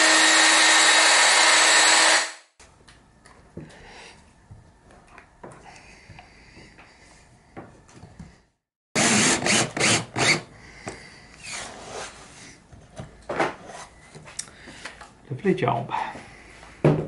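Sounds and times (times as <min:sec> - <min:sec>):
cordless drill driving screws: 0:00.0 - 0:02.4, 0:09.0 - 0:10.4.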